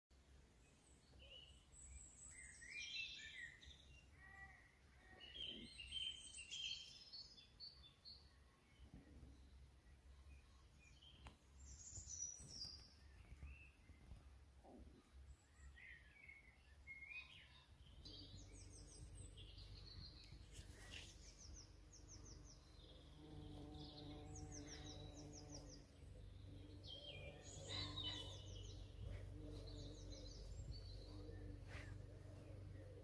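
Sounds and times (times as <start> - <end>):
birds singing and calling: 0.8 - 33.0
low steady hum: 17.8 - 33.0.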